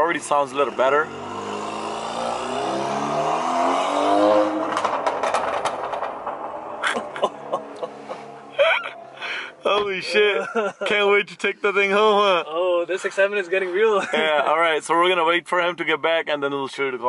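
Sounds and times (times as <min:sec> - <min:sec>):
exhaust cracks: 0:00.0 - 0:10.0
car engine accelerating: 0:00.0 - 0:10.1.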